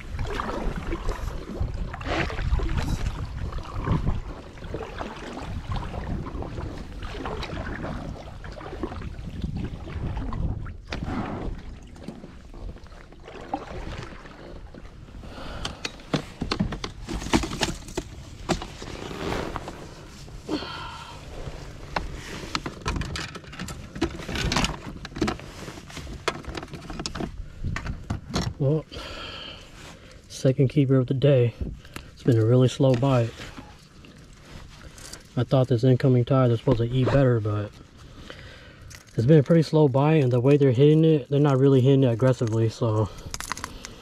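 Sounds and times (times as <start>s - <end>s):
paddle strokes in water: 0.0s - 22.9s.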